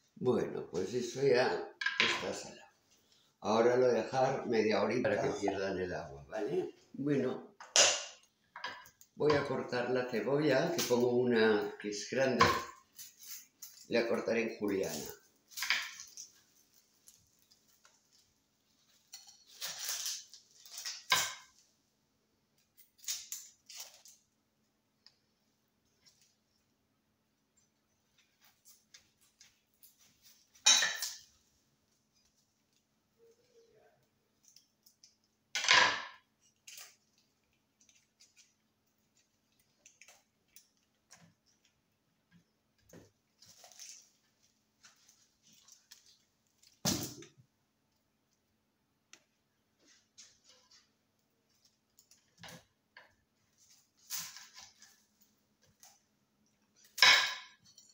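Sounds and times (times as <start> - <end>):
kitchen scrapes and rustles: 14.9 - 21.6, 53.4 - 55.2
knife clatter: 19.1 - 21.5, 30.6 - 31.3.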